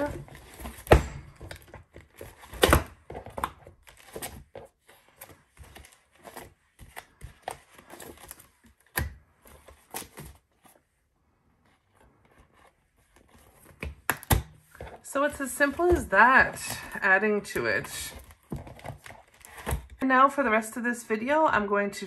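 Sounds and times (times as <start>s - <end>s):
plastic sheets and paper rustling: 0.0s - 11.0s, 11.6s - 22.0s.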